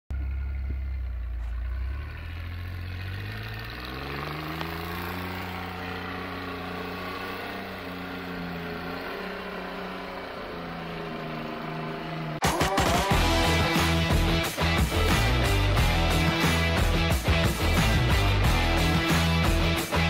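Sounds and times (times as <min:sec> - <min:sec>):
truck engine revving under load: 0:00.7 - 0:12.4.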